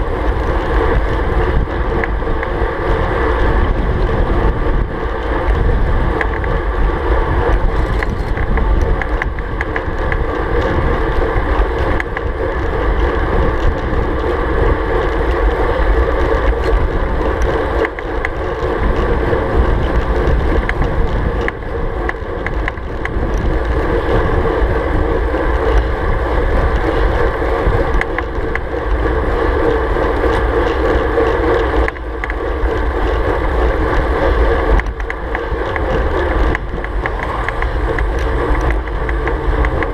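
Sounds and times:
bike tyre and road noise: 0.0 - 39.9
wind rushing over microphone: 0.0 - 39.9.

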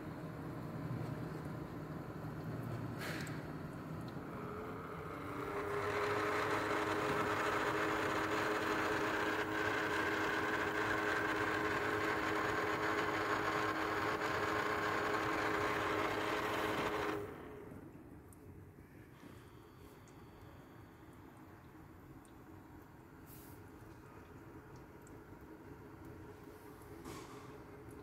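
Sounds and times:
dishwasher pump motor humming: 4.0 - 18.1.

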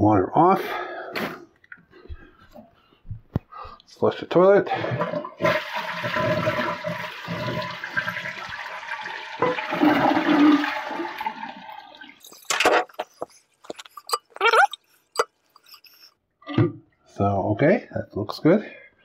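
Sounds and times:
toilet flushing: 4.6 - 12.9.

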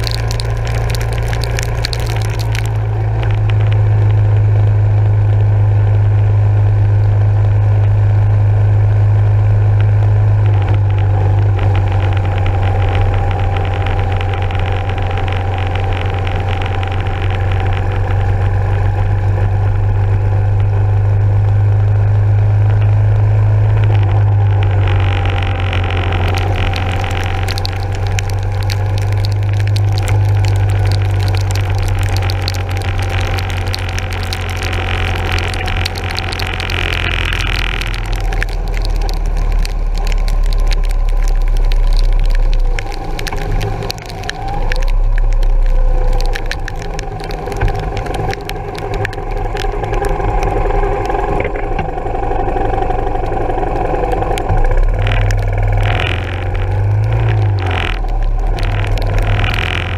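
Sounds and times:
rain and road spray hiss: 0.0 - 4.4, 23.3 - 51.3, 54.6 - 59.9.

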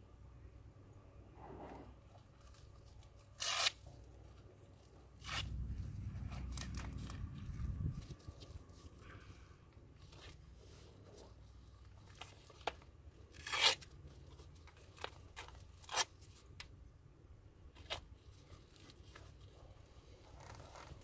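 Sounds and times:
strap handling: 2.2 - 9.3, 20.2 - 21.0
velcro straps ripping: 2.4 - 3.9, 5.2 - 8.6, 13.3 - 14.0, 14.7 - 16.4, 20.4 - 21.0.

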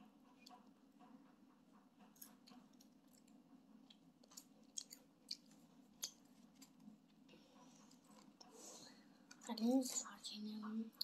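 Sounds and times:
child chewing food: 0.0 - 9.7.

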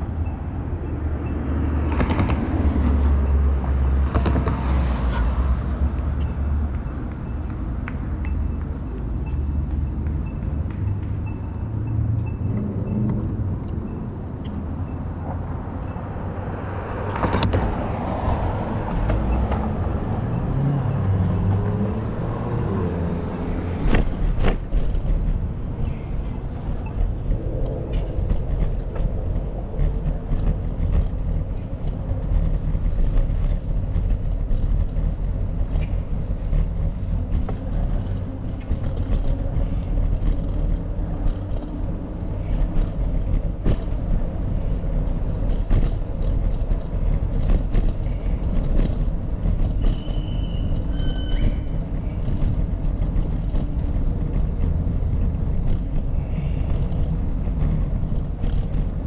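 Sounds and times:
bicycle rolling noise: 1.9 - 59.0
wind buffeting microphone: 12.0 - 59.0
short high squeaks: 49.8 - 51.8.

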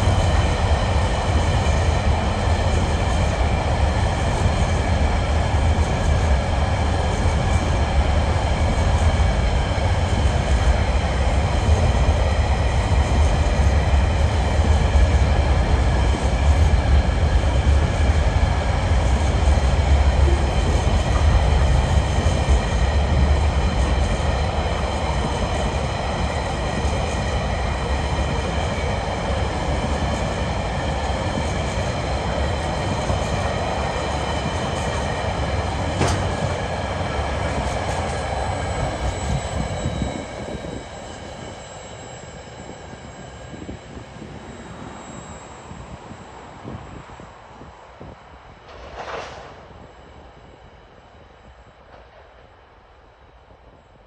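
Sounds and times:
train wheels rumbling on rails: 0.0 - 54.0
sharp click: 36.0 - 36.4.

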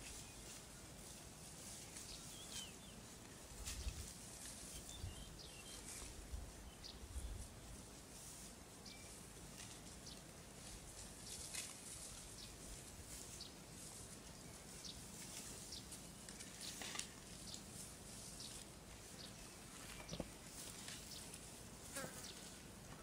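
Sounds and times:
birds chirping: 1.8 - 3.1, 18.3 - 21.4
grass being torn: 3.6 - 5.0, 10.6 - 12.3, 15.2 - 19.1, 19.8 - 22.7.

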